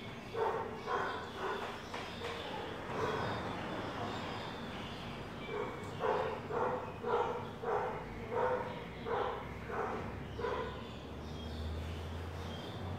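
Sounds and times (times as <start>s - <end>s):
dog barking: 0.3s - 1.8s, 5.5s - 10.9s.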